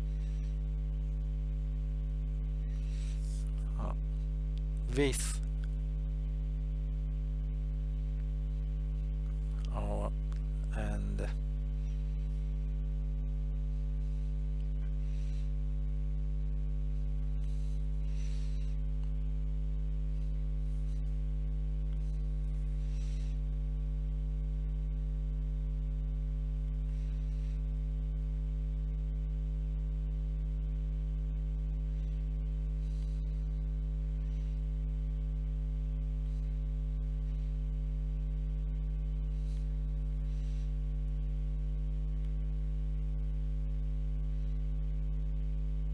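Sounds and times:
electrical mains hum: 0.0 - 45.9.

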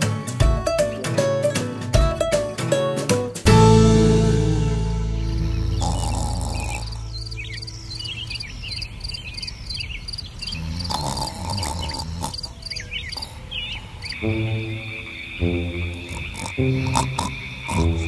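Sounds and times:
birds chirping: 4.2 - 18.0
low croaks: 5.0 - 9.2, 10.1 - 13.4, 14.0 - 18.0
cricket trill: 5.0 - 18.0
fast-pulsing insects: 5.2 - 18.0.

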